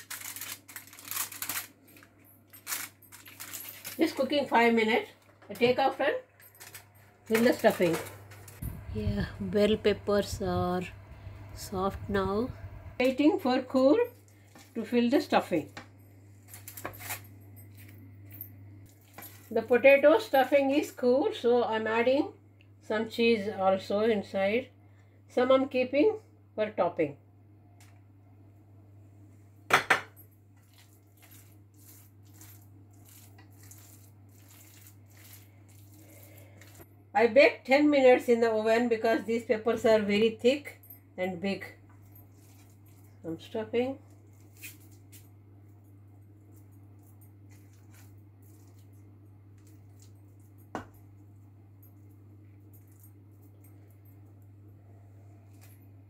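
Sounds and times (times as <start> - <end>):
steady low hum: 0.0 - 56.0.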